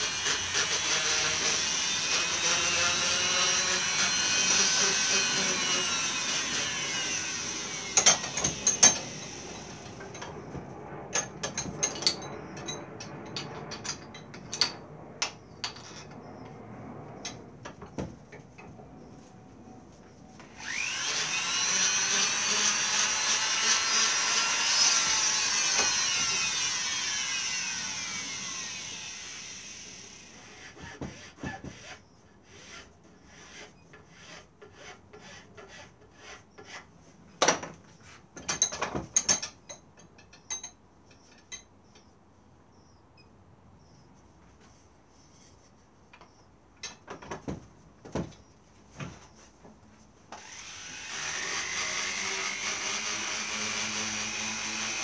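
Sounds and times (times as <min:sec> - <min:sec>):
small power tool running: 0:00.0 - 0:10.0, 0:20.4 - 0:30.3, 0:50.4 - 0:55.0
tools and wood knocking: 0:00.1 - 0:16.2, 0:20.4 - 0:27.3, 0:30.6 - 0:32.0, 0:33.9 - 0:42.1, 0:46.1 - 0:50.6.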